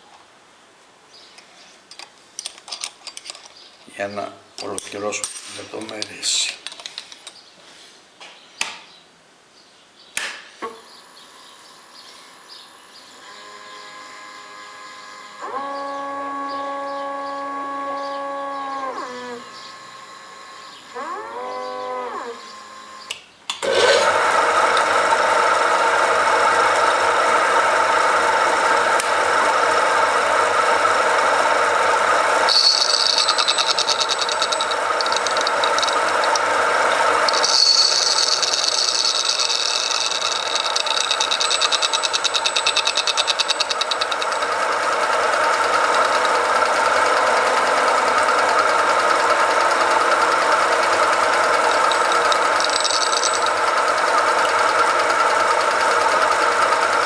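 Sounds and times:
lathe motor running: 0:22.4 - 0:57.0
tool bit cutting hiss: 0:32.5 - 0:44.4, 0:51.3 - 0:53.7.

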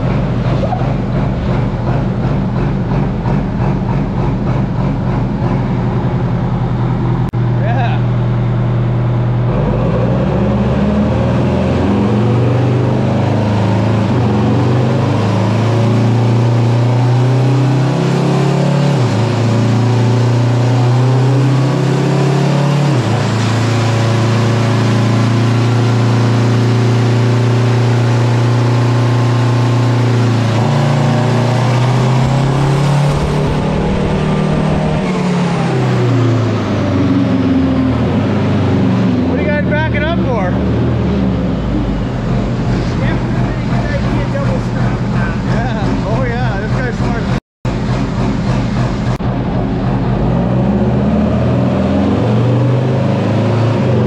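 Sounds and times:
diesel engine running under load: 0:25.0 - 0:51.4.

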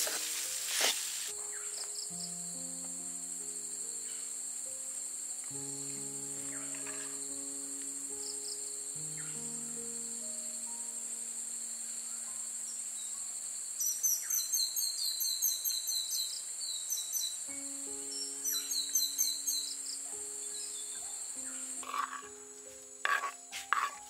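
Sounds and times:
insect chorus: 0:00.0 - 0:24.0
soft music of held notes: 0:00.0 - 0:24.0
rapid high chirping calls: 0:10.5 - 0:22.5.

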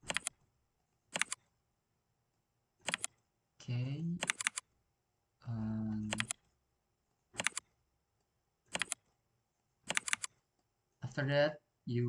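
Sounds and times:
keyboard and mouse clicking: 0:00.0 - 0:00.4, 0:01.1 - 0:01.5, 0:02.8 - 0:03.2, 0:04.2 - 0:04.7, 0:06.0 - 0:06.5, 0:07.3 - 0:07.7, 0:08.7 - 0:09.1, 0:09.8 - 0:10.4
man humming: 0:05.4 - 0:06.2.

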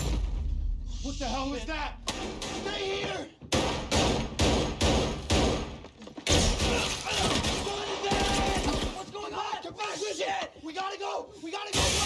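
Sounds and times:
gunshots with echoing tails: 0:03.5 - 0:06.9.

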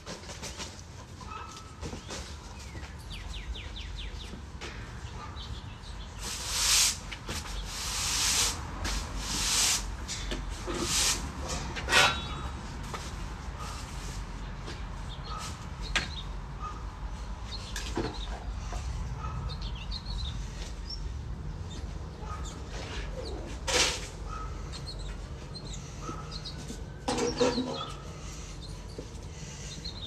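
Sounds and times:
small birds chirping: 0:00.3 - 0:06.6, 0:14.4 - 0:23.6, 0:24.2 - 0:30.0
loud hissing scrapes: 0:06.2 - 0:09.9, 0:10.6 - 0:12.2.

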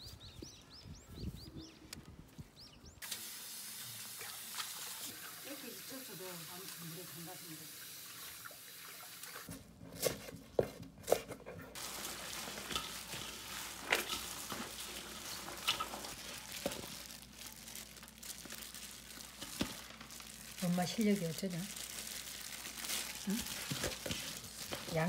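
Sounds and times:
chives rustling: 0:11.1 - 0:25.0
plastic gloves crinkling: 0:11.7 - 0:25.0.

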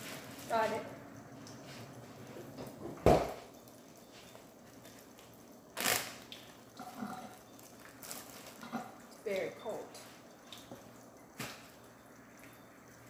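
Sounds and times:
plastic bag rustling: 0:00.0 - 0:00.8, 0:07.6 - 0:08.8.

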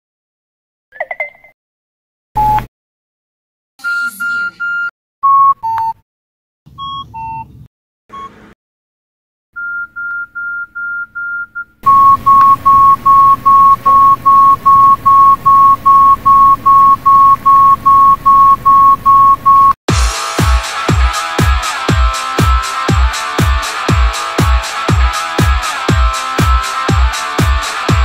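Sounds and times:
phone alert beeps: 0:03.8 - 0:06.0, 0:06.7 - 0:08.4, 0:09.6 - 0:19.7.

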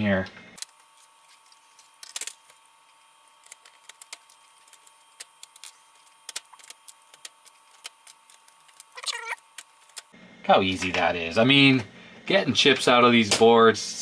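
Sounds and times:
chips clicking and tapping: 0:03.4 - 0:10.1.

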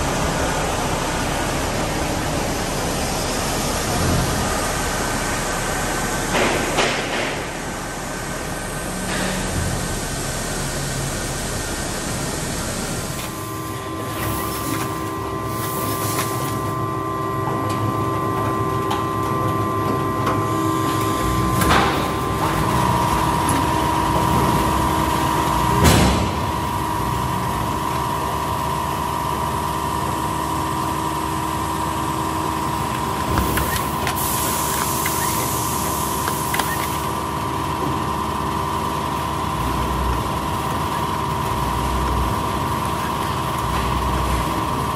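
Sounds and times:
machinery motor hum with rattle: 0:00.0 - 0:44.9.

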